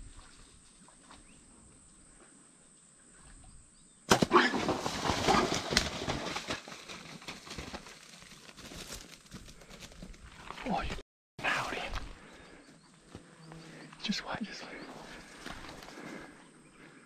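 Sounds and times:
crashing through dense vegetation: 0:04.1 - 0:08.0.

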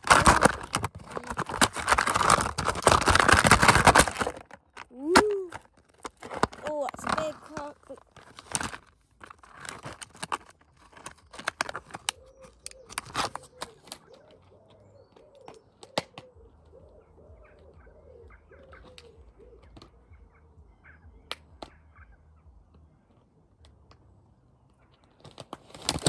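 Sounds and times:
plastic tub clicking and crinkling: 0:00.0 - 0:16.4, 0:18.7 - 0:20.0, 0:25.0 - 0:26.0
bird cooing softly: 0:12.0 - 0:22.2.

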